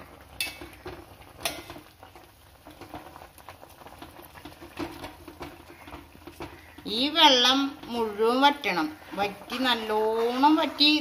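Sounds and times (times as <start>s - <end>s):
pot bubbling: 0.0s - 11.0s
metal spoon clinking against pot: 0.4s - 0.7s.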